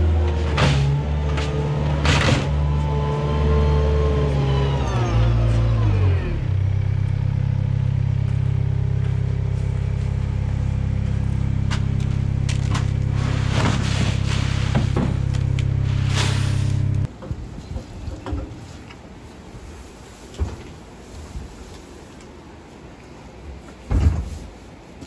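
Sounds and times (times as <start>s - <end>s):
wheel loader engine idling: 0.0s - 19.1s.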